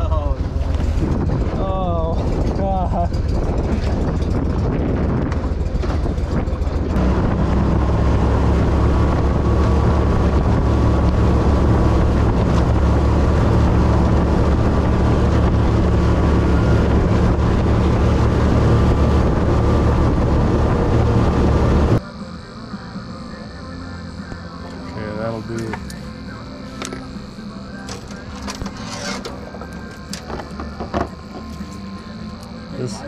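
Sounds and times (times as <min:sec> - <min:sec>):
wind buffeting microphone: 0:00.0 - 0:22.0
outboard motor running: 0:00.0 - 0:33.0.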